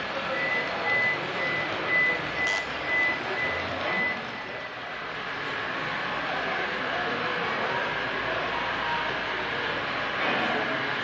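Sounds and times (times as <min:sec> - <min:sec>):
exhibition hall noise: 0:00.0 - 0:11.0
high electronic beeping: 0:00.3 - 0:05.9.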